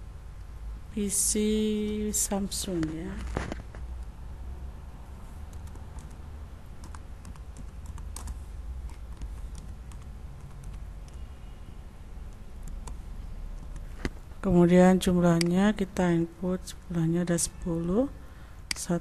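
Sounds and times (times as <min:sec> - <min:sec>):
steady low hum: 0:00.0 - 0:19.0
typing on computer keyboard: 0:05.5 - 0:06.2, 0:06.8 - 0:11.3.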